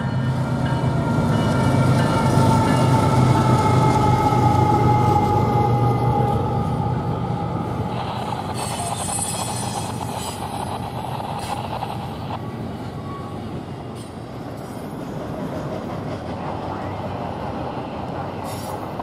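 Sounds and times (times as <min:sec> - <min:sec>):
diesel locomotive engine: 0:00.0 - 0:19.0
train wheels rumbling on rails: 0:00.0 - 0:19.0.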